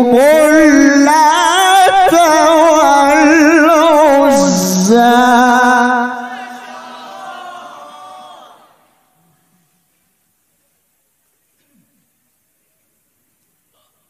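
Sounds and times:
man chanting melodically: 0.0 - 6.6.

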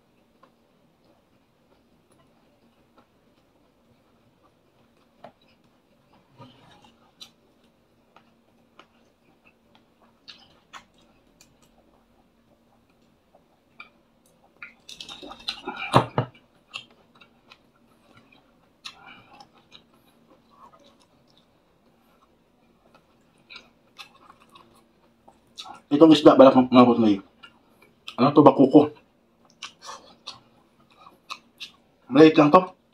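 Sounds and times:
soft chewing: 0.0 - 26.0, 27.0 - 32.1
faint steady hum: 0.0 - 32.9
lip smacks: 29.5 - 31.8.

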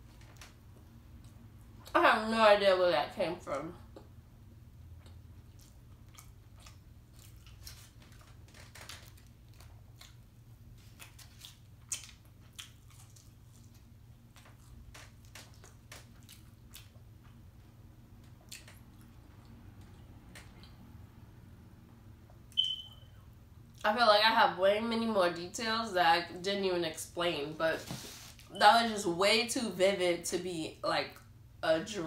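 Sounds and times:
low steady hum: 0.0 - 32.0
person chewing: 5.0 - 17.4, 18.2 - 20.8.

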